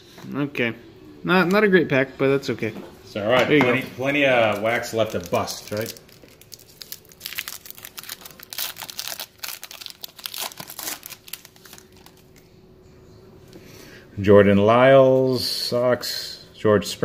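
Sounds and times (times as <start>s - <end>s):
foil wrapper crinkling: 4.4s - 12.4s.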